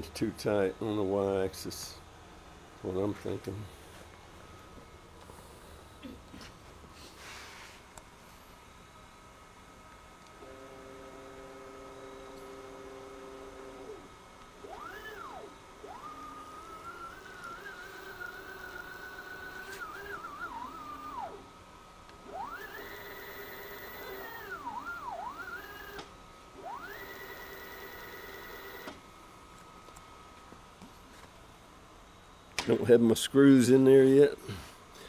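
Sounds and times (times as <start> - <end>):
stepper motors whining: 10.4 - 21.5, 22.1 - 29.0.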